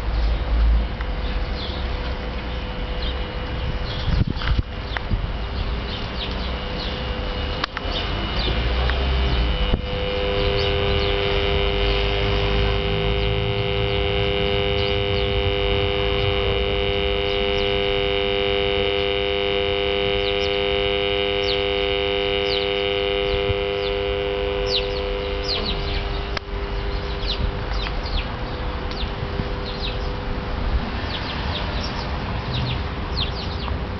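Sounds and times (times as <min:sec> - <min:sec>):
electrical hum: 0:00.0 - 0:31.8
bird chirps: 0:02.5 - 0:09.6, 0:10.4 - 0:13.8, 0:22.4 - 0:24.0, 0:24.6 - 0:30.2.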